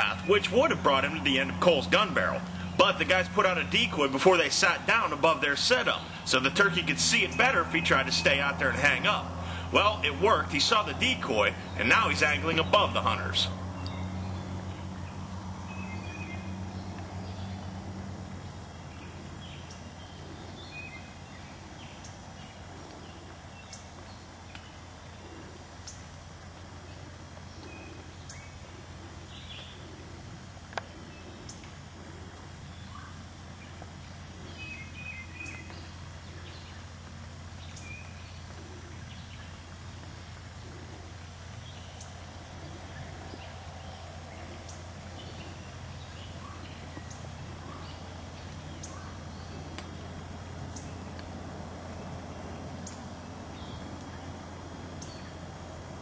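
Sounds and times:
bird calls: 0.0 - 56.0
steady low hum: 0.0 - 56.0
wild turkey gobbling: 38.5 - 39.0.

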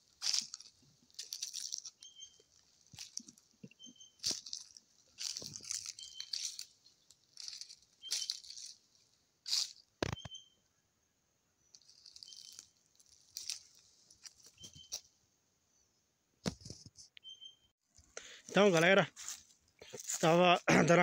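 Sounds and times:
rustling and crackling: 0.0 - 10.3, 11.7 - 15.1, 17.9 - 20.4.

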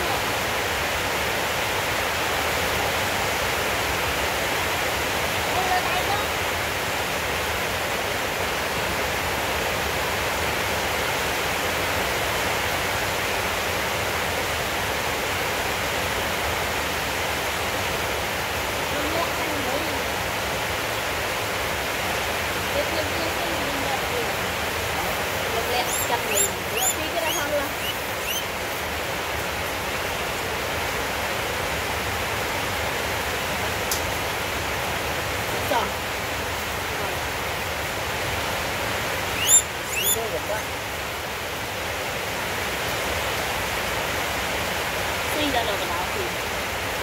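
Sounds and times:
steady rushing hiss: 23.8 - 31.6
high rising chirp: 25.8 - 28.5, 39.4 - 40.2.

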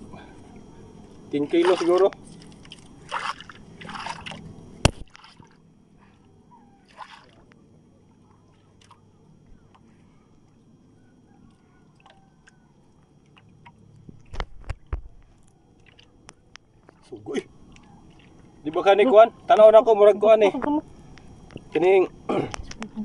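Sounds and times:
water sloshing against boat hull: 0.5 - 9.9, 11.4 - 18.7.

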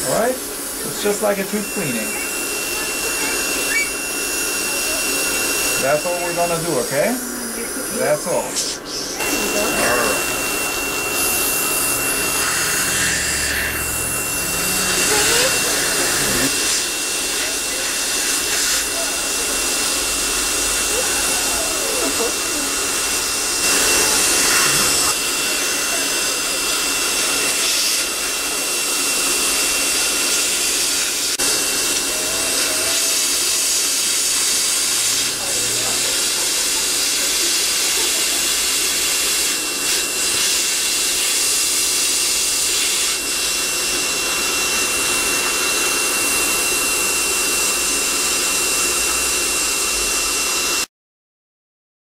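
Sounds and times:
dental laser hissing: 0.0 - 50.9
dental suction: 0.0 - 50.9
high-pitched whistle: 1.8 - 4.2.

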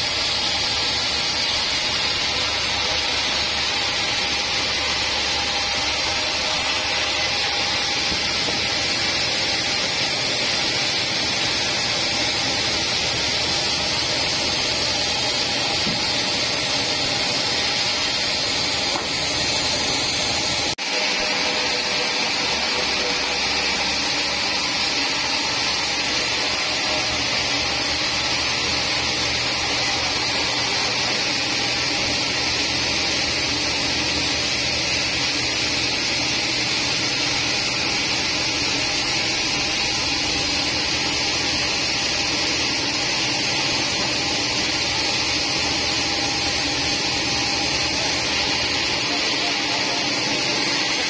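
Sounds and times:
band saw cutting log: 0.0 - 51.0.

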